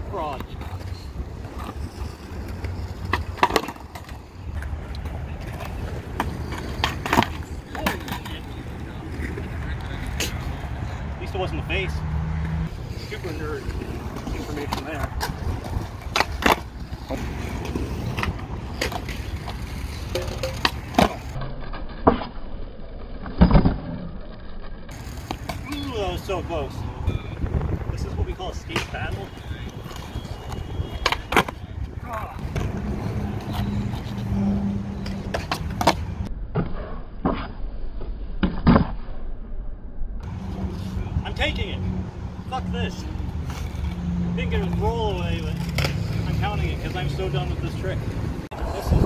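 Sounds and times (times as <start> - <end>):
skateboard wheels rolling on concrete: 0.0 - 39.4, 40.2 - 49.0
skateboard clacks: 0.3 - 10.3, 13.6 - 21.4, 28.7 - 34.2, 35.0 - 37.5.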